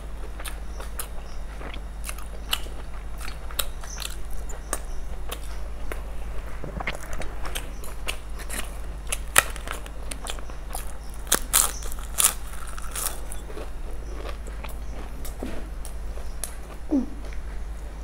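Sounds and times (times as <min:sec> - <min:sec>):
chewing: 0:00.2 - 0:17.9
crisp snack snapping and crunching: 0:00.4 - 0:06.0, 0:06.8 - 0:16.6.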